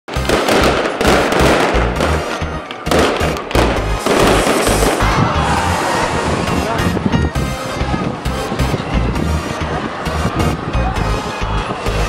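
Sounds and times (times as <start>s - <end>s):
fireworks bursting and crackling: 0.1s - 6.7s.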